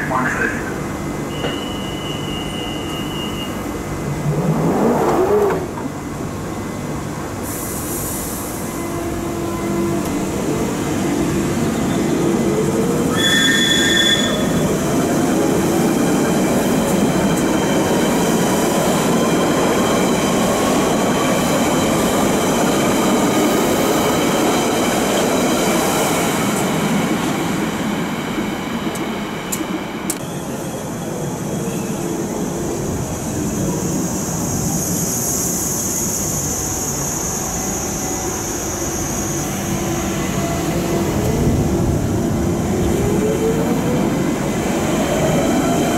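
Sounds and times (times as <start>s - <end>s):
wheel and track rumble: 4.0s - 6.2s
high-pitched wheel squeal: 13.1s - 14.6s.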